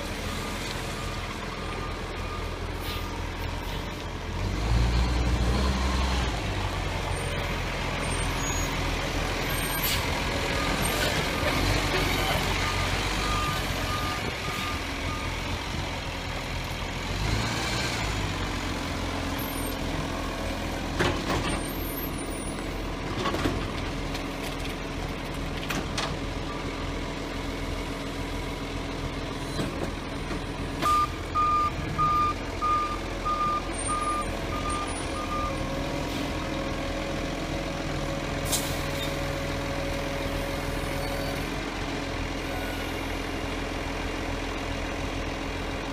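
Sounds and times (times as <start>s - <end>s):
diesel engine running: 0.0s - 45.9s
reversing alarm beeping: 12.6s - 15.4s, 30.8s - 35.6s.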